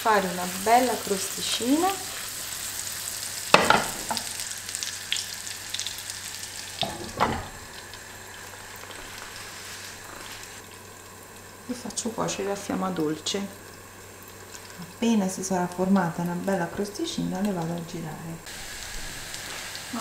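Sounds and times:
fritters sizzling in a frying pan: 0:00.0 - 0:20.0
glass lid knocking on pan: 0:03.6 - 0:04.2.

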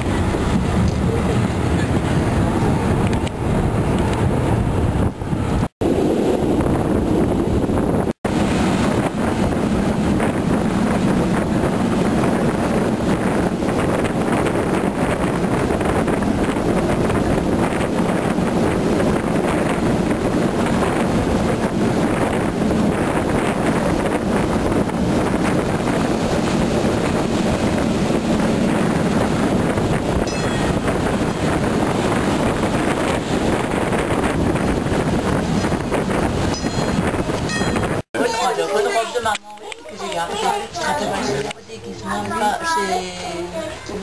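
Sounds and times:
train carriages rumbling on track: 0:00.0 - 0:05.6, 0:09.4 - 0:39.0
wind rushing over microphone: 0:00.0 - 0:44.0.

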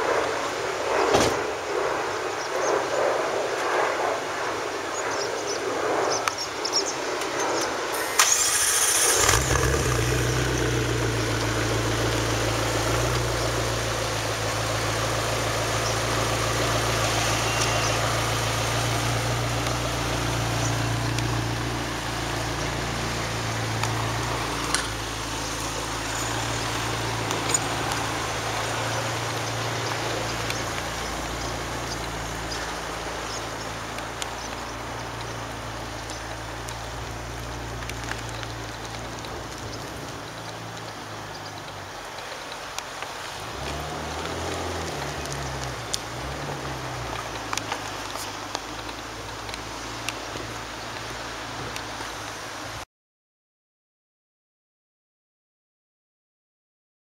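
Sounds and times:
car engine starting and idling: 0:07.9 - 0:34.0.

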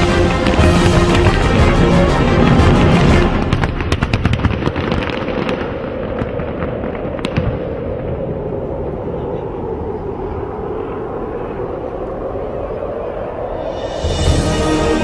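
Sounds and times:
fireworks crackling and banging: 0:00.0 - 0:08.4
firework sharp crack: 0:02.9 - 0:08.1.

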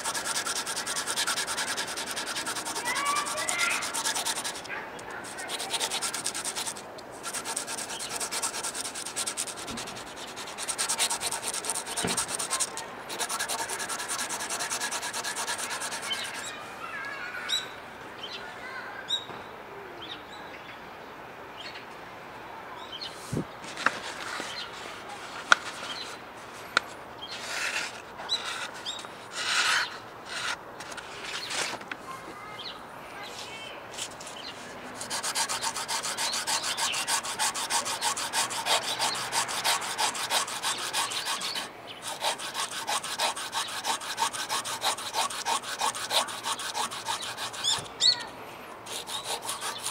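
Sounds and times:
blade slicing paper: 0:00.0 - 0:16.4, 0:35.0 - 0:47.9, 0:48.9 - 0:49.9
knife blade scraping on sandpaper: 0:00.0 - 0:16.6, 0:23.7 - 0:26.2, 0:27.2 - 0:31.8, 0:33.4 - 0:49.9
bird chirps: 0:47.6 - 0:48.3.

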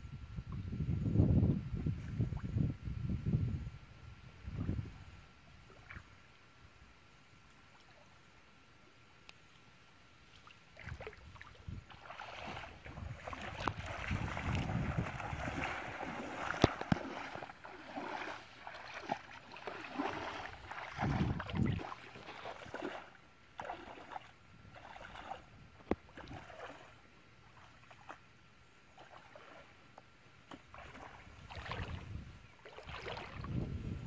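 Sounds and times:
water splashing and sloshing: 0:09.5 - 0:33.8.

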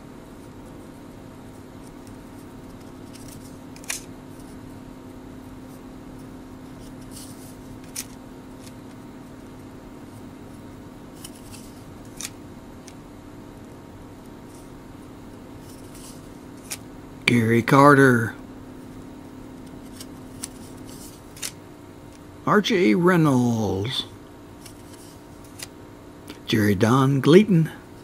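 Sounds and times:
cards rustling and snapping: 0:01.8 - 0:04.6, 0:06.6 - 0:09.0, 0:11.1 - 0:13.0, 0:15.6 - 0:16.9, 0:19.6 - 0:22.2, 0:24.6 - 0:26.4.

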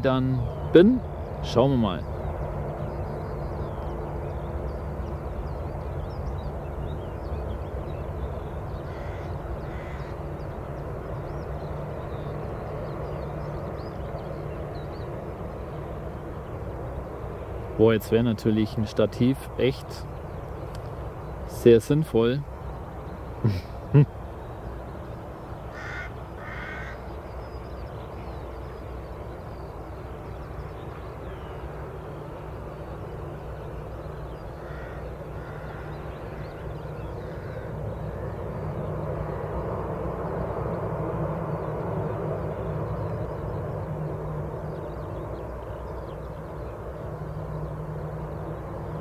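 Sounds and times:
jet engines rumbling: 0:00.0 - 0:49.0
bird cawing: 0:08.8 - 0:10.4, 0:25.6 - 0:27.6, 0:34.4 - 0:39.6.

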